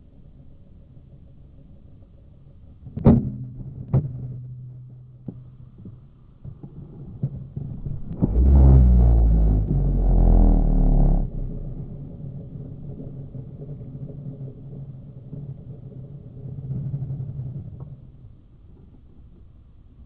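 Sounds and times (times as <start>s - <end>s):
deep rumble with falling tones: 0.0s - 18.6s
ringing low tone: 7.8s - 12.2s.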